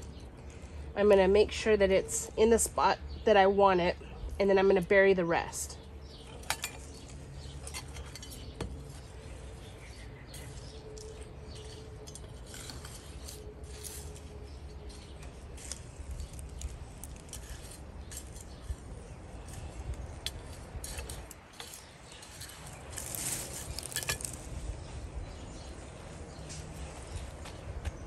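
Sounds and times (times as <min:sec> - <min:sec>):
hand tool scraping soil: 0:07.6 - 0:24.5.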